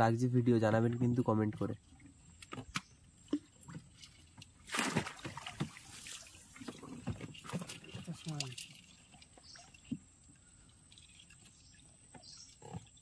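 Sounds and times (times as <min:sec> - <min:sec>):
water sloshing and dripping: 0:01.0 - 0:13.0
water splash: 0:04.6 - 0:10.0.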